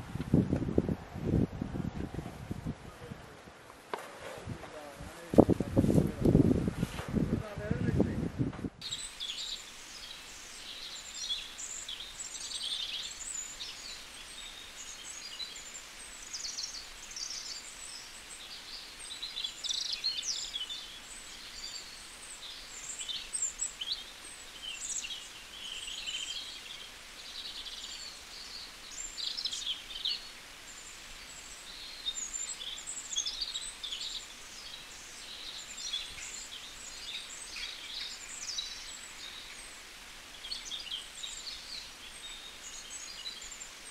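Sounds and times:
faint outdoor hiss: 0.0 - 43.9
small birds chirping: 8.8 - 43.9.

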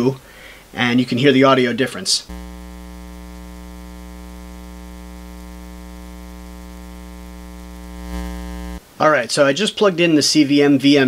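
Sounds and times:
electrical buzz: 2.3 - 8.8.

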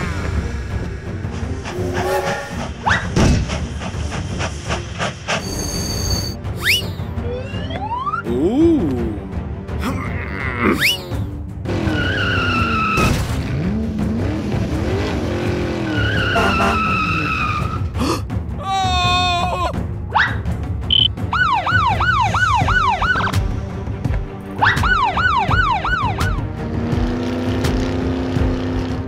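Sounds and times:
background music: 0.0 - 29.0
police siren effect wailing: 6.6 - 8.3, 21.3 - 23.4, 24.6 - 26.4.

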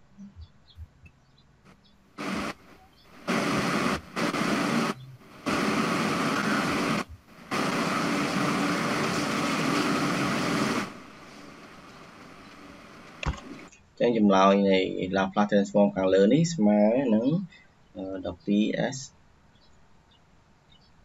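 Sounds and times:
loud static hiss: 1.6 - 15.7.

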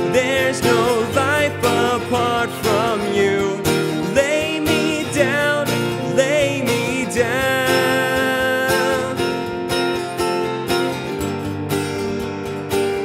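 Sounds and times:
man singing: 0.0 - 9.7
strummed acoustic guitar: 0.0 - 13.0.

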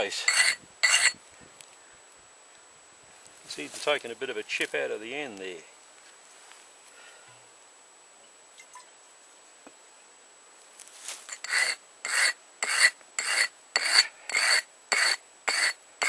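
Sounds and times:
chisel rasping on sharpening stone: 0.2 - 1.2, 11.3 - 15.8.

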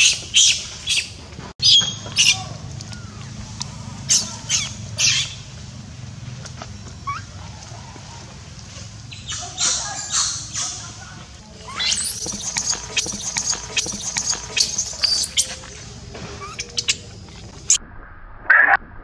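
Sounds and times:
baby monkey screaming: 1.6 - 5.5, 7.0 - 8.3, 9.1 - 15.8
faint clicks: 2.7 - 3.8.

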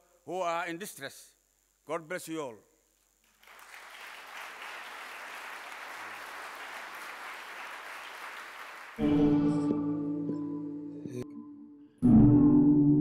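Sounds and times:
audience applauding: 3.2 - 9.1.

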